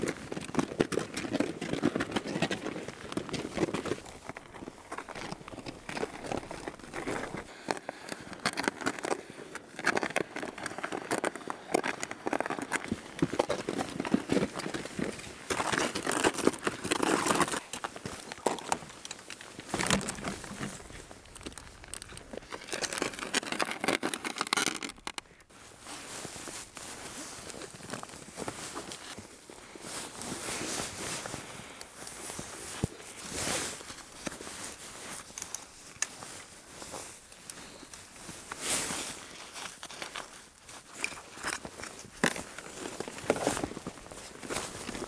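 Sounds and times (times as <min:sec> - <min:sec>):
plastic sled scraping on snow: 0:08.3 - 0:18.9, 0:19.6 - 0:25.2
boots crunching through snow: 0:25.6 - 0:37.2.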